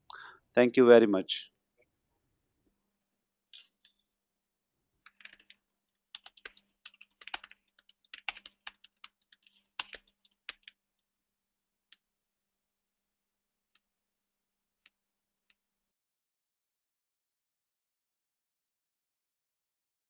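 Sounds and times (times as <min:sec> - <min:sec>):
typing on computer keyboard: 0:05.0 - 0:10.8.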